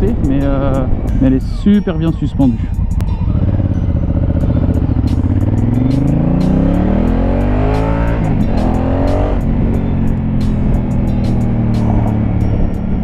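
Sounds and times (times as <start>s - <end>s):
motorcycle engine accelerating: 2.8s - 13.0s.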